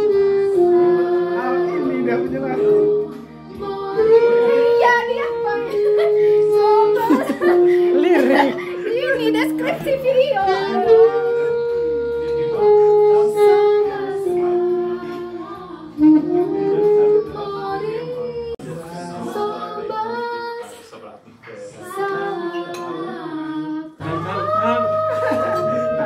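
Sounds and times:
group of people singing: 16.8 - 26.0.

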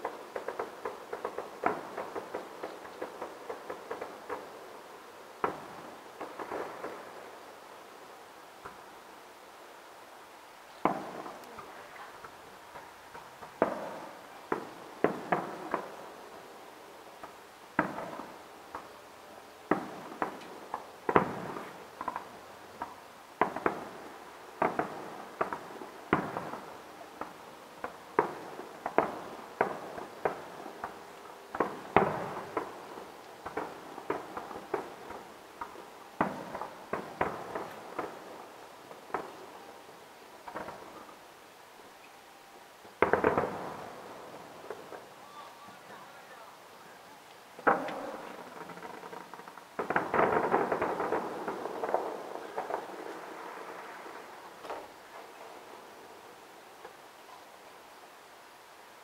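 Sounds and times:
distant firework shells bursting: 19.7 - 39.7, 40.4 - 41.1, 43.0 - 45.1, 47.6 - 55.4.

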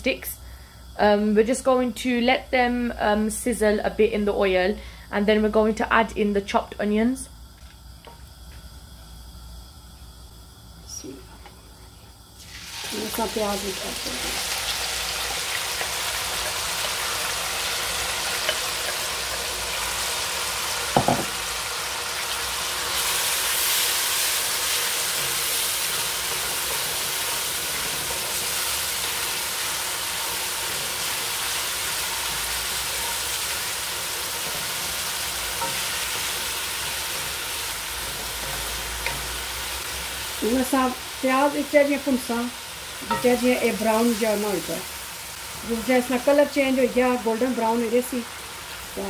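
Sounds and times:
onions sizzling in hot oil: 12.1 - 49.0.

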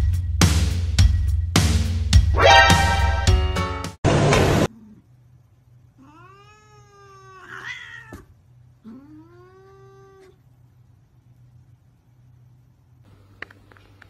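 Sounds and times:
short loud noise burst: 2.3 - 4.5
cat meowing: 6.0 - 8.3.

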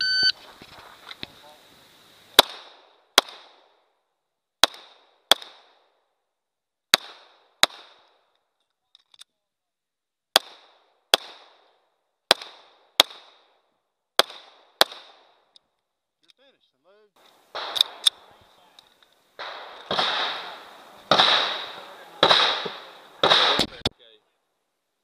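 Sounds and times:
pistol shots: 2.4 - 3.7, 4.6 - 5.9, 6.9 - 8.1, 10.3 - 11.7, 12.3 - 13.5, 14.2 - 15.4, 17.5 - 18.4, 19.4 - 23.9.

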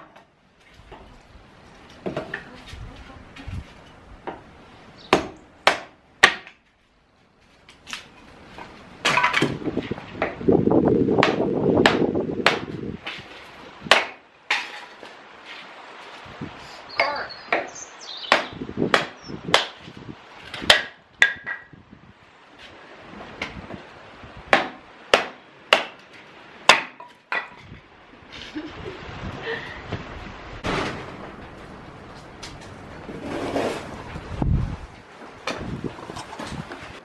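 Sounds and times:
splitting maul striking logs: 5.1 - 6.6, 9.0 - 10.4, 11.2 - 13.2, 13.8 - 15.0, 18.3 - 19.8, 20.5 - 21.7, 24.5 - 27.6.

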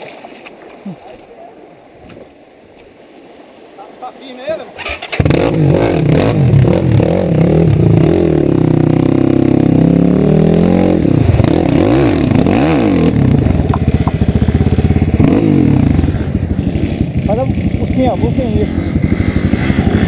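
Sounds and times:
dirt bike engine revving: 4.8 - 20.0.

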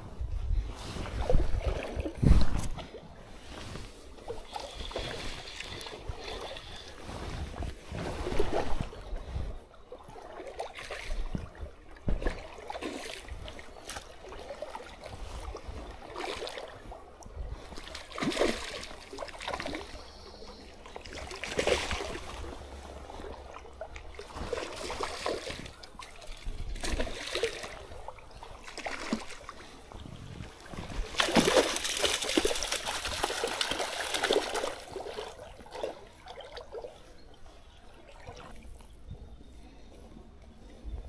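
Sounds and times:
wind on microphone: 0.0 - 4.0
stream water splashing: 9.9 - 17.0, 17.6 - 20.1, 20.7 - 37.1.

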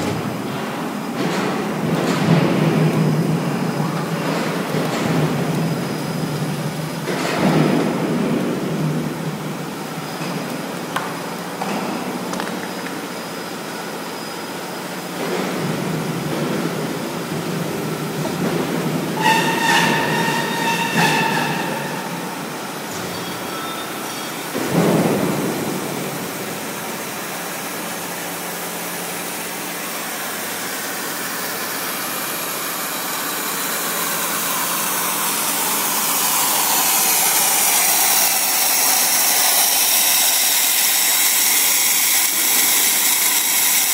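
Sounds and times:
roll forming machine running: 0.0 - 43.9
metallic squeal: 19.2 - 24.5
hiss: 29.8 - 43.9.

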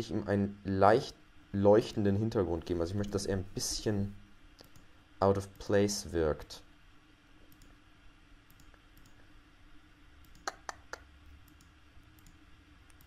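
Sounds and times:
faint steady hum: 0.0 - 13.0
computer mouse clicking: 4.6 - 4.9, 7.5 - 7.8, 8.5 - 9.2, 10.2 - 13.0.

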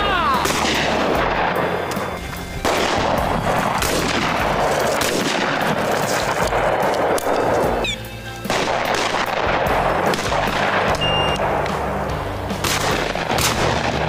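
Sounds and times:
loud steady noise: 0.0 - 14.0
shotgun blast: 0.4 - 1.8, 2.6 - 7.6, 8.5 - 11.6, 12.6 - 14.0.

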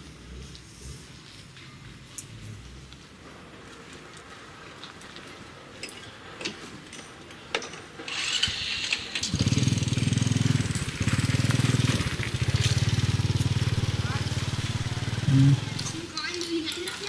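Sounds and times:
small engine puttering: 7.6 - 17.0.

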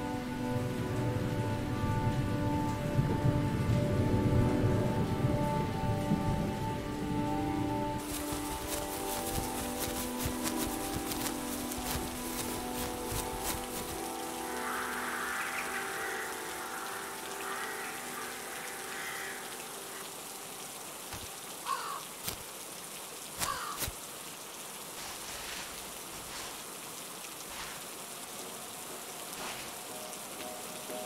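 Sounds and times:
steady rain falling: 0.0 - 31.0
crow cawing: 14.9 - 20.1, 21.6 - 22.1, 23.4 - 23.9.

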